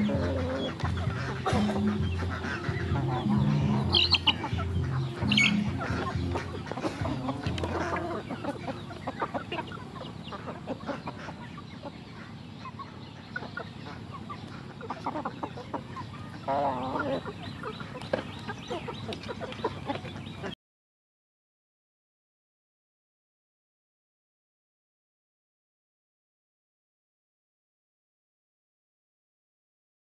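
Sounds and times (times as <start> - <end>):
wavering chicken call: 0.0 - 10.0
chickens clucking: 0.0 - 20.6.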